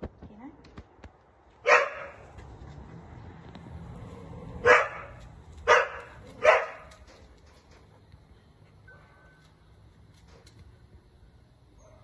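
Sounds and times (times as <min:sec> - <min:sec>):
dog barking: 0:01.6 - 0:02.2, 0:04.6 - 0:06.9, 0:11.8 - 0:12.0.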